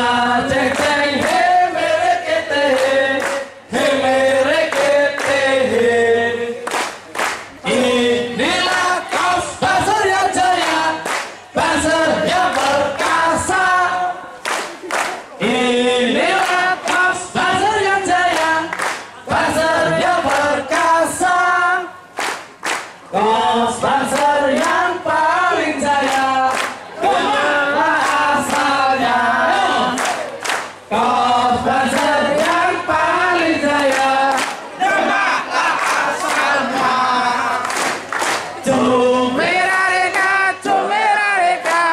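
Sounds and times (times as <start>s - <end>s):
men singing together: 0.0s - 6.7s, 7.6s - 14.3s, 15.4s - 22.0s, 23.1s - 37.8s, 38.6s - 41.9s
hand claps: 0.5s - 1.6s, 2.7s - 3.5s, 4.6s - 5.5s, 6.6s - 7.6s, 8.6s - 13.6s, 14.4s - 15.4s, 16.3s - 20.9s, 22.2s - 23.0s, 24.1s - 24.8s, 26.0s - 26.8s, 27.9s - 28.7s, 29.9s - 30.8s, 33.8s - 34.6s, 37.5s - 38.6s, 41.6s - 41.9s.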